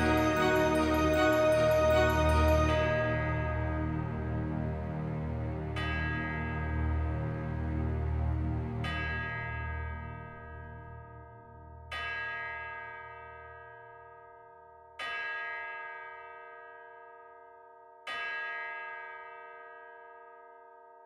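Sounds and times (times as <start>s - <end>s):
bell tolling: 0.0s - 7.8s.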